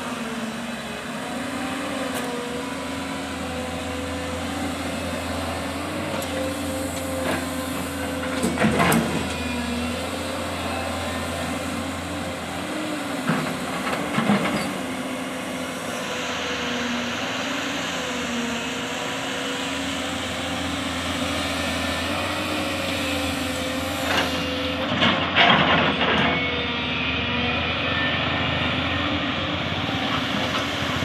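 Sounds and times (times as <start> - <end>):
excavator diesel engine droning: 0.0 - 31.0.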